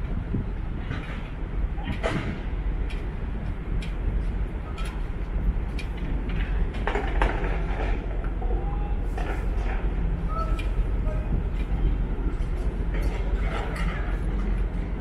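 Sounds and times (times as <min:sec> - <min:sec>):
low machinery hum and rumble: 0:00.0 - 0:15.0
knocks and clanks: 0:00.9 - 0:03.0, 0:05.8 - 0:08.5.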